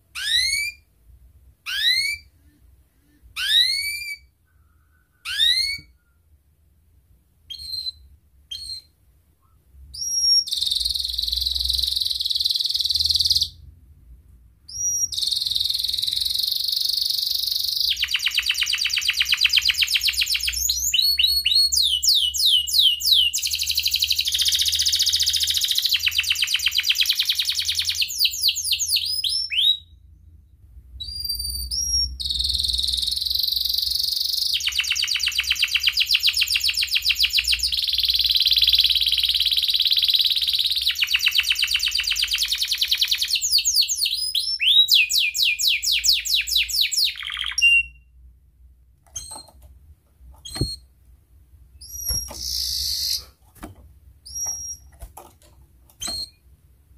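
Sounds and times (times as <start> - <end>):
canary singing trills: 0.1 - 0.9, 1.6 - 2.3, 3.3 - 4.4, 5.2 - 6.0, 7.5 - 9.0, 9.9 - 13.6, 14.7 - 30.1, 31.0 - 48.1, 51.8 - 53.3, 54.2 - 55.0.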